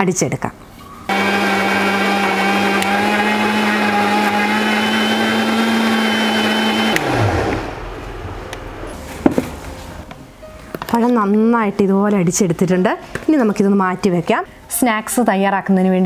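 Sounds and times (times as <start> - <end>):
mixer grinder running: 1.1 - 8.3
motor winding down: 2.2 - 7.9.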